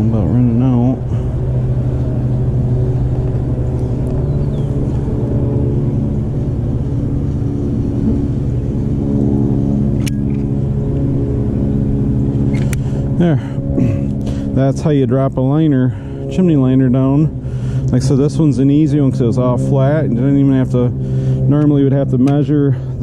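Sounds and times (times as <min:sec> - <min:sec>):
engine running steadily: 0:00.0 - 0:23.0
sharp click: 0:10.0 - 0:10.5.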